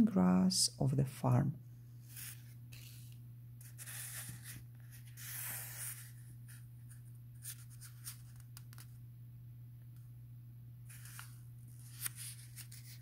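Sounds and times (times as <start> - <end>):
steady low hum: 0.0 - 13.0
book pages rustling: 2.0 - 9.0, 10.9 - 13.0.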